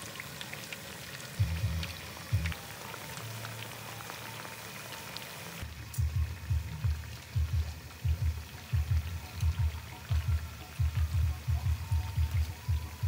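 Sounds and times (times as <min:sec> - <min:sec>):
food sizzling in oil: 0:00.0 - 0:13.0
music with pulsing bass: 0:01.4 - 0:02.6, 0:05.9 - 0:13.0.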